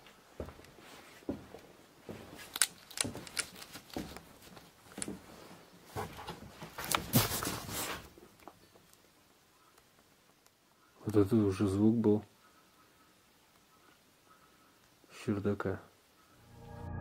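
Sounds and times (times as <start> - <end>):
footsteps on wooden floor: 0.0 - 7.5.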